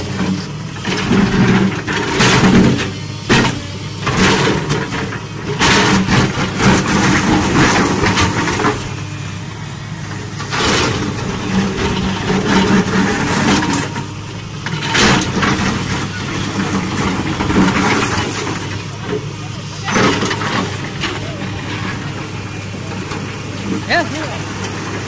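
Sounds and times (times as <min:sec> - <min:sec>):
excavator diesel engine: 0:00.0 - 0:25.0.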